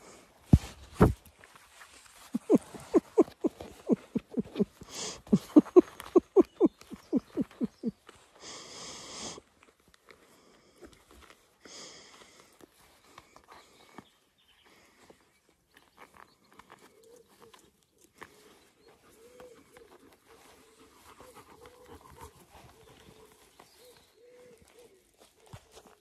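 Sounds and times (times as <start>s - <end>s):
breathy noises: 2.2s - 15.5s
puppy yelping: 2.4s - 7.9s.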